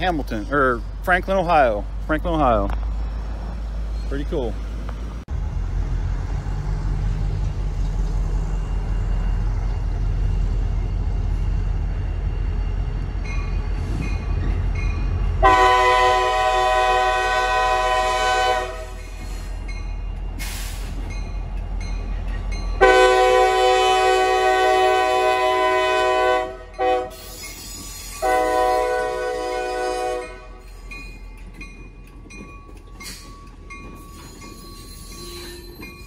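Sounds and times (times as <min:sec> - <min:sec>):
diesel locomotive engine rumble: 0:00.0 - 0:36.0
locomotive air horn blasts: 0:15.4 - 0:19.0, 0:22.8 - 0:27.3, 0:28.2 - 0:30.6.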